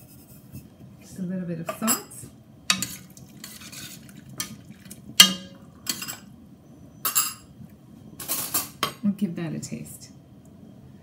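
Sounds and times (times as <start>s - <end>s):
spoon knocking and scraping pot: 2.7s - 6.2s.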